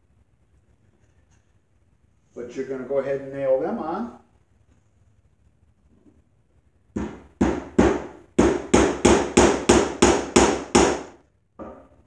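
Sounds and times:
hammer striking nail into wood: 0:07.0 - 0:11.7.

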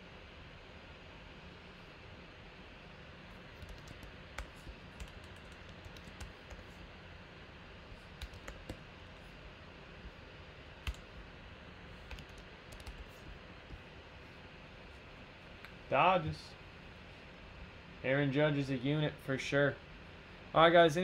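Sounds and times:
computer keyboard typing: 0:03.5 - 0:06.8, 0:08.0 - 0:08.8, 0:10.8 - 0:11.2, 0:12.0 - 0:13.8.

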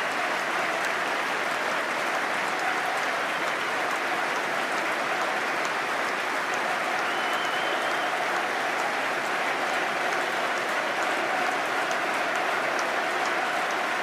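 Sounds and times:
stadium crowd applauding: 0:00.0 - 0:14.0.

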